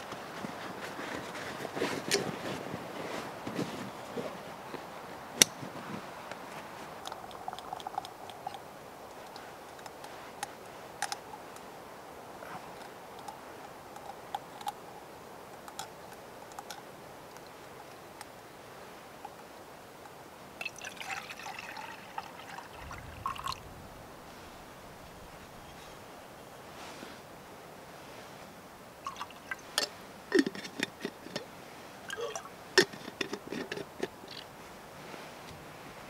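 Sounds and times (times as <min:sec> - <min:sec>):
water pouring into metal mug: 0:20.6 - 0:25.2, 0:29.1 - 0:29.6
metal pot clicking and tapping: 0:29.1 - 0:31.4, 0:32.1 - 0:34.4.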